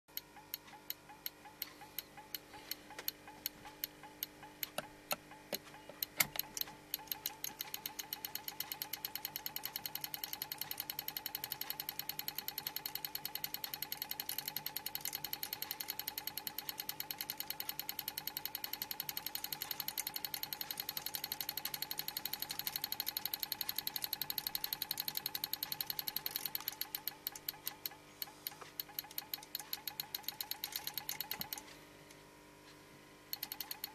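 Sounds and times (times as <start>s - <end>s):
faint steady hum: 0.1s - 33.9s
motor rotor ticking: 0.4s - 31.7s, 33.3s - 33.9s.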